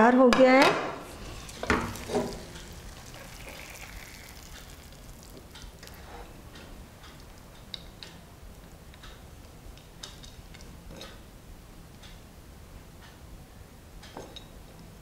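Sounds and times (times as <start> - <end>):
scraping food from pan: 1.0 - 5.2.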